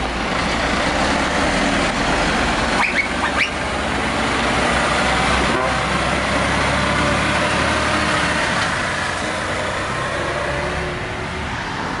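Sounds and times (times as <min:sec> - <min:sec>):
truck driving past: 0:00.1 - 0:12.0.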